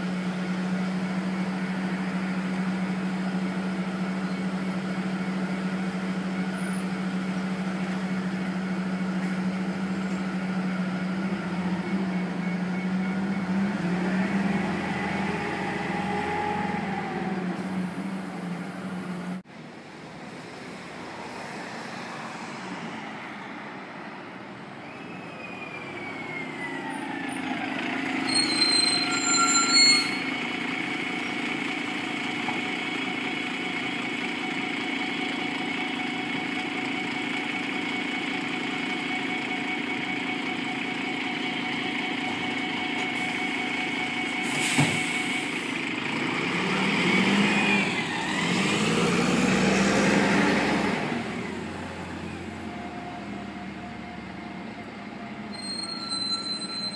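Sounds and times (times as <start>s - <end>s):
bus engine whine: 0.0s - 56.9s
air brake hisses: 43.1s - 45.8s.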